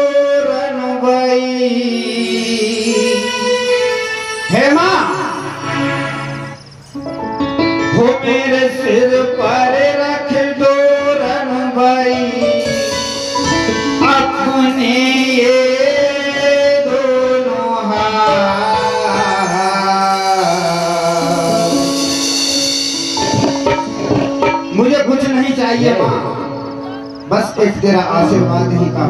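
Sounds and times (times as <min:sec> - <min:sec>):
instrumental accompaniment: 0:01.5 - 0:11.1, 0:12.0 - 0:29.0
man singing folk song: 0:07.9 - 0:12.8, 0:14.0 - 0:21.9.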